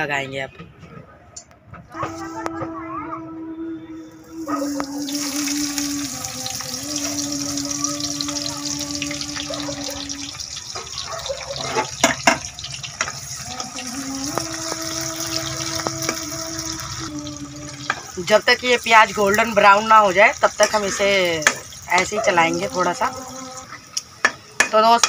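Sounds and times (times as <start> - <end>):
oil sizzling in a pan: 4.3 - 25.0
metal spoon clacking on pan: 11.6 - 13.4, 20.5 - 22.2, 23.9 - 25.0.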